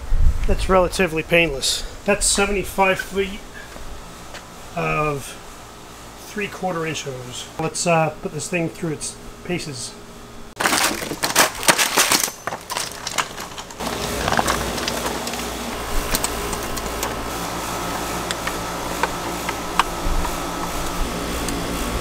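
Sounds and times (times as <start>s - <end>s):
steady hum: 0.0s - 22.0s
hose reel cart rattling: 10.6s - 21.6s.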